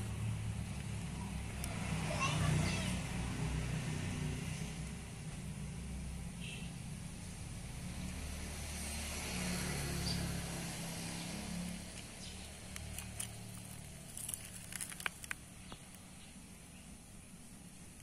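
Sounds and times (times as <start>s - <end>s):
low engine rumble: 0.0s - 8.0s.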